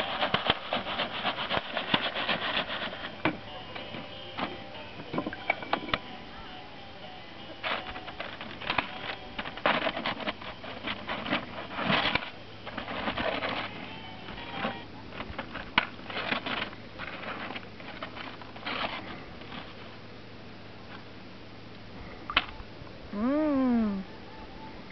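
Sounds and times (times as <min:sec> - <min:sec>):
popcorn popping: 0:00.0 - 0:06.4, 0:07.3 - 0:19.8.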